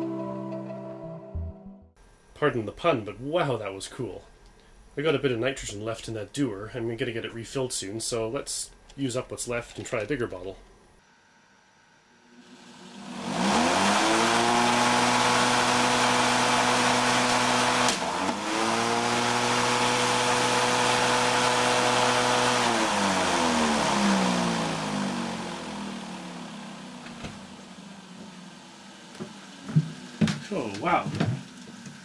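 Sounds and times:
lawnmower motor whine: 0:12.1 - 0:32.0.

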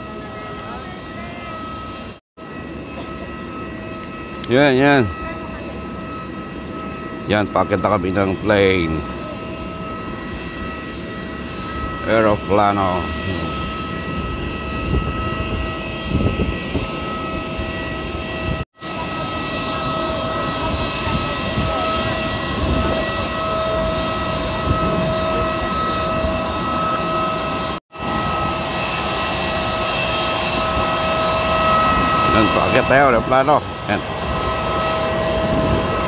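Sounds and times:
jet airliner rush and whine: 0:00.0 - 0:36.0
steady tones: 0:19.4 - 0:36.0.

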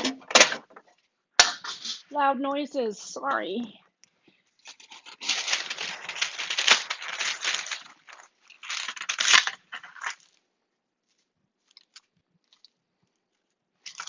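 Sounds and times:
crinkling pan liner: 0:00.0 - 0:02.1, 0:04.3 - 0:10.4, 0:11.0 - 0:14.0.

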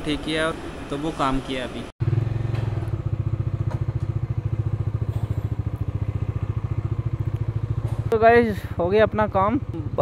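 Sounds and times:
motorcycle engine idling: 0:02.0 - 0:10.0.

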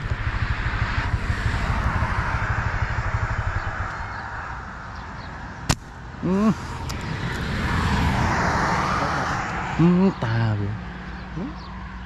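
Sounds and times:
motorbike engine idling: 0:00.0 - 0:05.3.

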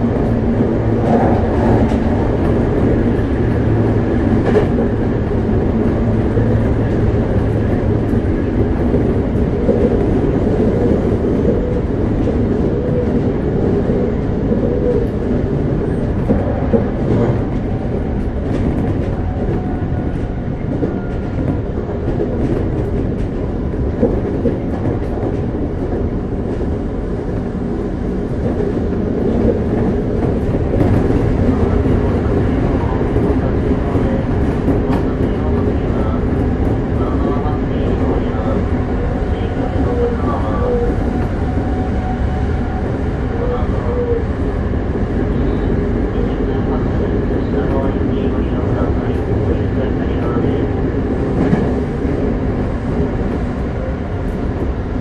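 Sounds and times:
train wheels rumbling on rail: 0:00.0 - 0:55.0
clacks over track joints: 0:28.3 - 0:38.7.

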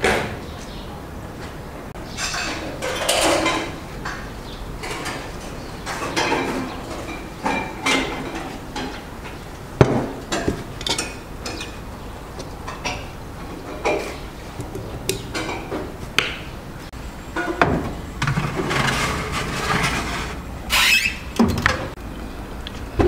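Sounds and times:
ladle clattering in metal pot: 0:05.9 - 0:09.1.

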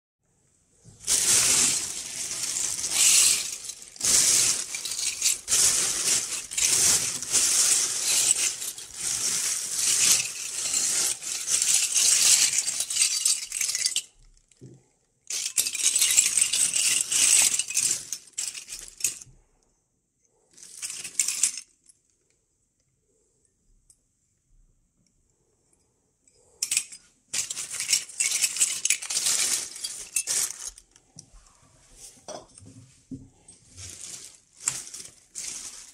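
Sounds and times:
metal tubes clinking in a bag: 0:01.0 - 0:14.2, 0:15.3 - 0:19.3, 0:20.6 - 0:21.8, 0:26.4 - 0:31.0, 0:33.5 - 0:35.9.

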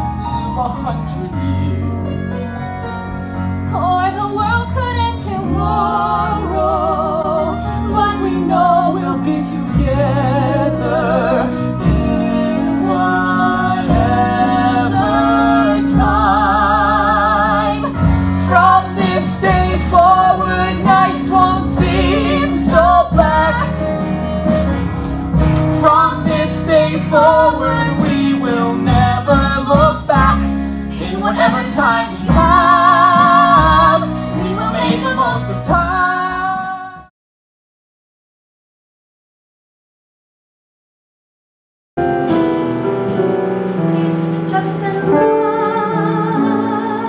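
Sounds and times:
instrumental accompaniment: 0:00.0 - 0:37.1, 0:42.0 - 0:47.0
woman singing a ballad: 0:03.7 - 0:23.9, 0:25.6 - 0:37.1, 0:44.2 - 0:47.0.

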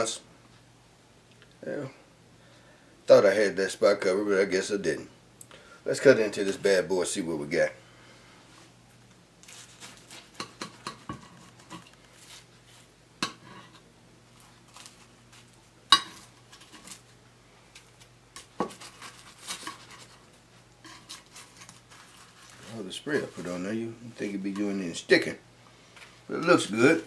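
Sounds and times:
knife scraping ceramic dish: 0:13.2 - 0:13.8.

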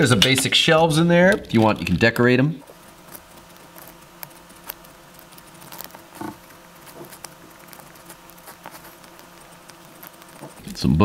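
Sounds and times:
pencil scratching on paper: 0:02.7 - 0:10.7.

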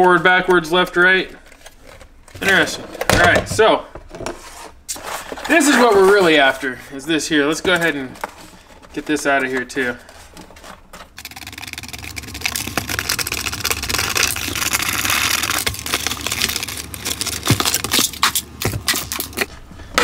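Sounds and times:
cardboard scraping and rustling: 0:04.0 - 0:06.6, 0:07.4 - 0:20.0.

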